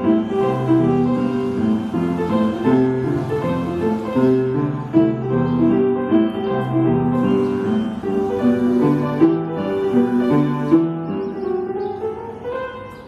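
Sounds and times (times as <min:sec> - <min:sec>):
piano playing: 0:00.0 - 0:13.0.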